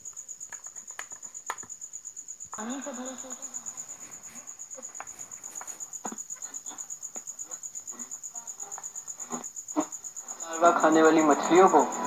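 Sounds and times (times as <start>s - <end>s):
cricket chirping: 0.0s - 12.0s.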